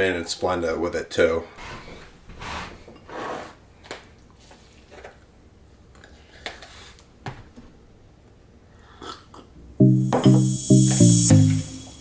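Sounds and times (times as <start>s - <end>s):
music: 9.8s - 12.0s.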